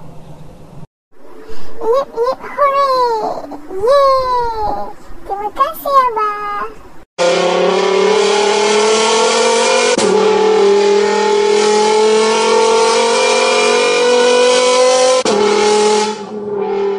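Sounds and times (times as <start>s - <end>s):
car engine revving: 7.2s - 16.9s.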